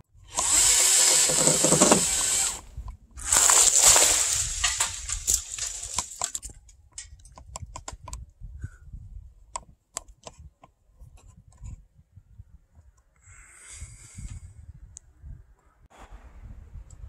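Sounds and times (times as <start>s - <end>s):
sharp irregular clicks and taps: 7.2s - 8.2s.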